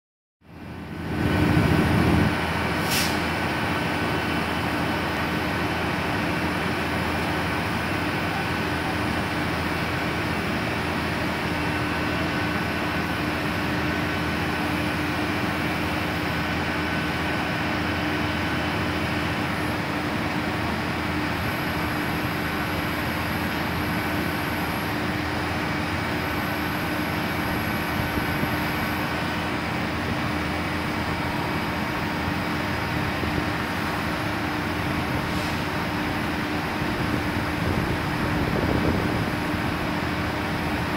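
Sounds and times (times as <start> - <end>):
diesel engine humming: 0.4 - 40.9
hydraulic whine: 0.7 - 40.9.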